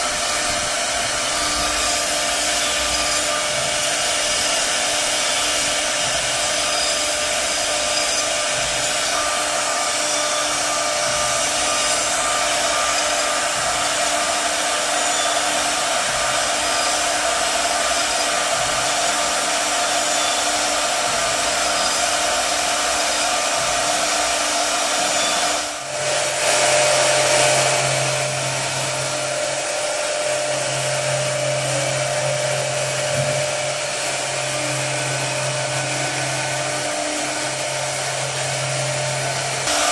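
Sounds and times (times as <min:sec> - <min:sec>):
bit cutting wood: 0:00.0 - 0:39.9
router spindle whine: 0:00.0 - 0:39.9.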